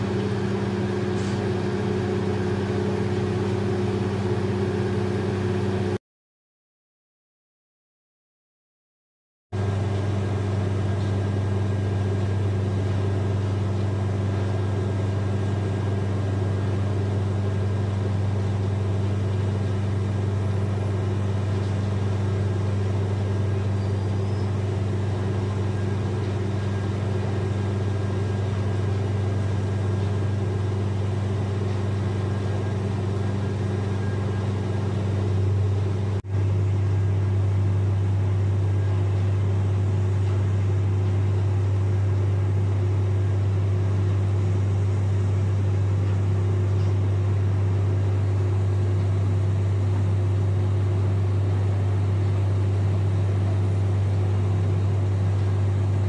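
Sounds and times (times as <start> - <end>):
heavy machinery drone: 0.0 - 6.0, 9.6 - 42.4.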